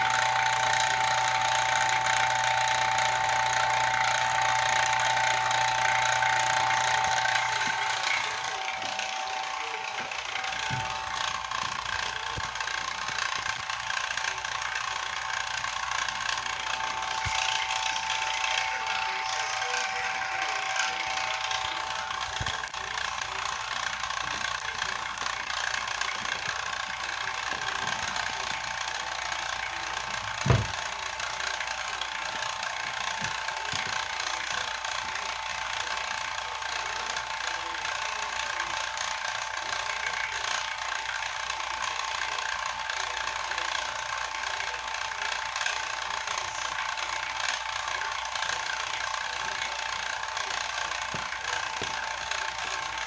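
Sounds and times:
steady whine: 0.0s - 38.8s
vacuum pump running: 0.0s - 53.0s.

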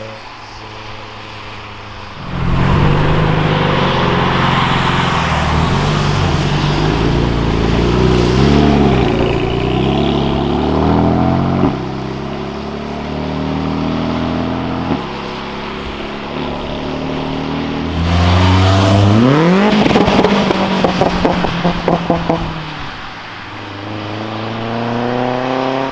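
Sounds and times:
car engine accelerating hard: 2.2s - 22.7s.

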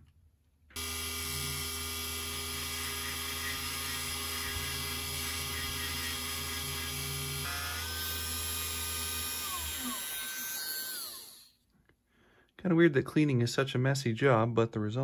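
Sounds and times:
bench lathe motor hum and whine: 0.8s - 11.5s.

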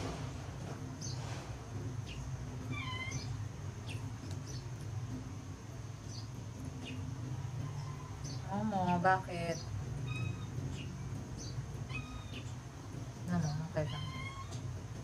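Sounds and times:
steady low hum: 0.0s - 15.0s
cat meowing: 2.7s - 3.4s, 10.0s - 10.6s, 11.9s - 12.5s, 13.8s - 14.7s.

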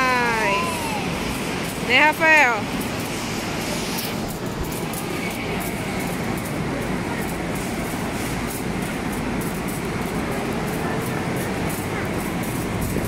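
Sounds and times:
shopping cart rolling on tiles: 0.0s - 13.0s.

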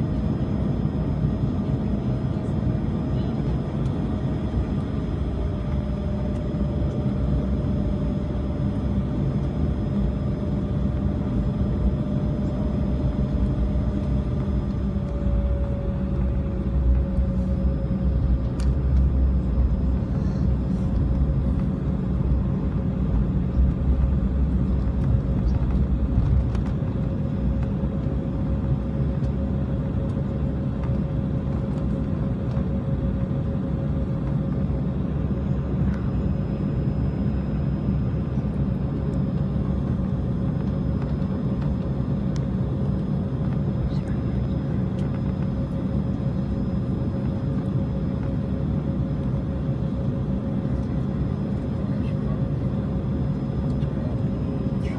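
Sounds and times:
jet engine whine: 0.0s - 54.9s
low rumble of rolling aircraft: 0.0s - 54.9s.

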